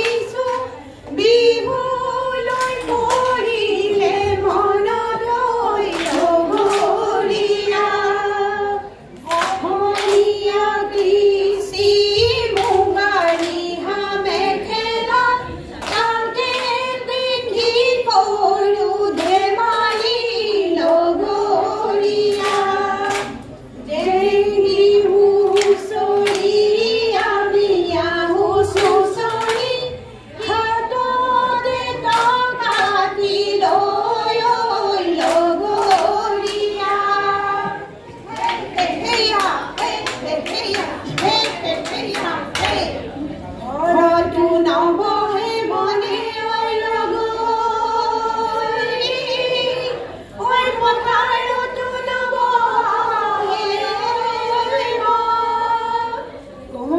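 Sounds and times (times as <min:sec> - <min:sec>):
women singing folk song: 0:00.0 - 0:56.9
hands clapping: 0:02.5 - 0:04.6, 0:05.8 - 0:07.9, 0:09.2 - 0:11.2, 0:12.4 - 0:14.6, 0:15.7 - 0:16.9, 0:19.1 - 0:21.0, 0:22.3 - 0:24.2, 0:25.4 - 0:26.6, 0:28.7 - 0:29.8, 0:32.0 - 0:33.4, 0:35.2 - 0:37.1, 0:38.3 - 0:43.0.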